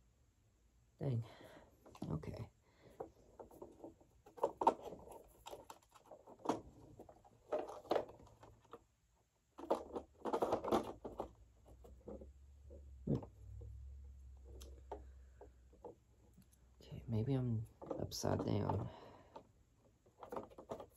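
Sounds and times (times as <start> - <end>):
plastic parts clicking and scraping: 1.8 - 20.9
plastic rattling: 2.8 - 8.9, 9.5 - 13.7, 17.4 - 20.9.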